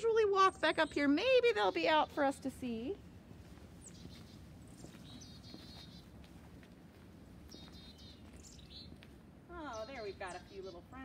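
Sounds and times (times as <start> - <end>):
chickadees calling: 3.7 - 6.2, 7.4 - 11.0.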